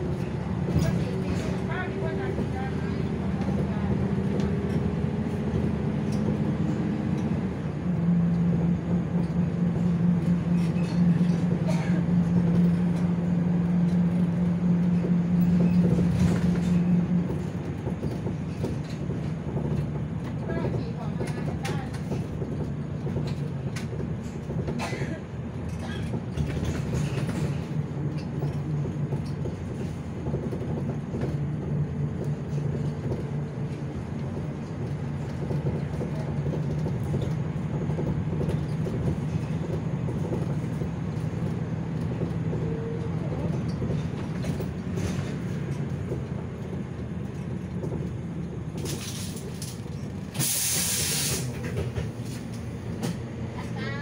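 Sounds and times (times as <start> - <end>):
bus engine drone: 0.0 - 54.0
road noise: 0.0 - 54.0
air hissing: 50.4 - 51.7.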